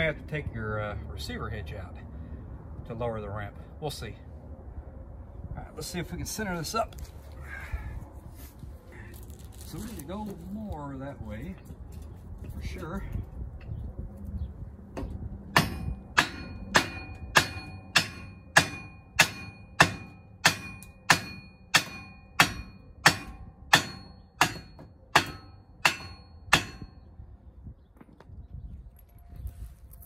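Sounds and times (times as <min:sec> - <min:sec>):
hammer striking steel tube: 0:15.5 - 0:27.0.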